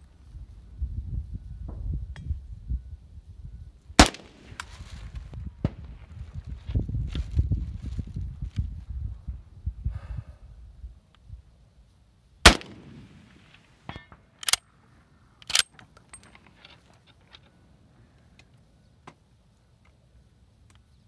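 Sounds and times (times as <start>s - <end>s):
wind buffeting microphone: 0.0s - 11.5s
rifle shot with echo: 4.0s - 4.6s, 12.4s - 13.7s.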